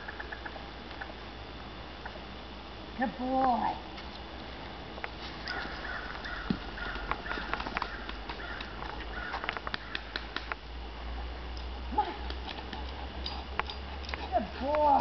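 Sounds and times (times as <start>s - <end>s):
footsteps on gravel: 5.0s - 9.9s
dog running on gravel: 6.7s - 10.2s.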